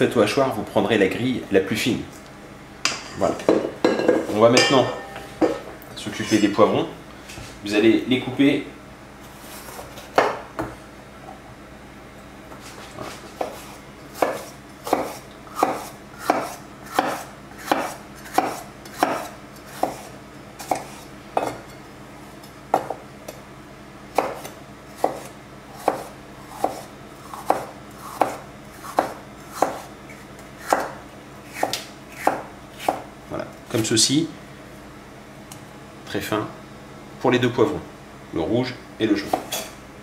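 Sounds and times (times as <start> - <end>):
knife chopping on wooden board: 9.7 - 10.7, 13.4 - 21.6, 22.7 - 23.4, 24.2 - 29.9, 30.6 - 33.1.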